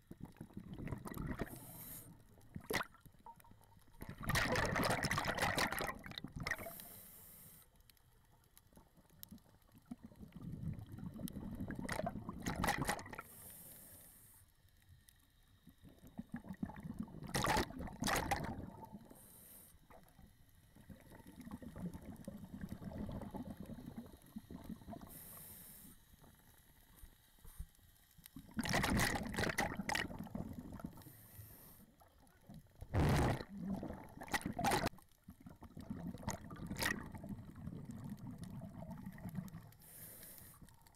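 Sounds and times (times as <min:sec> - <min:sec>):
diver breathing through regulator: 0:39.8 - 0:40.7.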